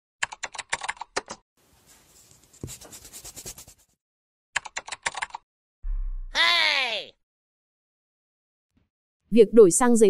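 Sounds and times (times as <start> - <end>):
marker scribbling on paper: 1.8 - 4.0.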